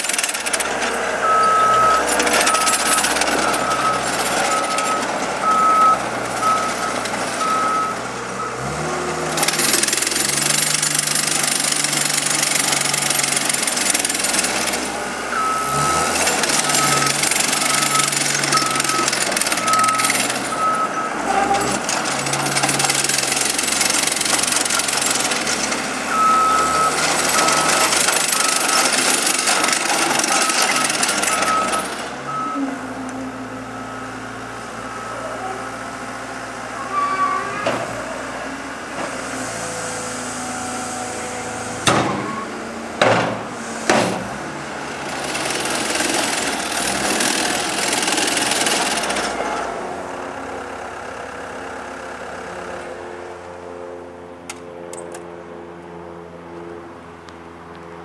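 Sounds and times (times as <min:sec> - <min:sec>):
diesel engine running: 0:00.0 - 0:58.0
backup alarm beeping: 0:00.6 - 0:11.0, 0:15.3 - 0:21.8, 0:22.4 - 0:36.8.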